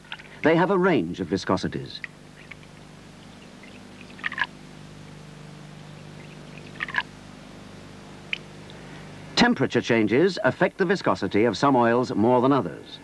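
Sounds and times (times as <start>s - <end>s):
low hum: 0.0s - 10.3s
liquid dripping into beakers: 2.4s - 4.5s, 6.2s - 7.1s.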